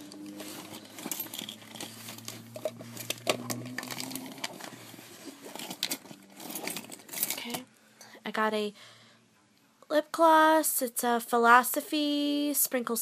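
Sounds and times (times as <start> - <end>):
hand rummaging through handbag: 0.0 - 7.6.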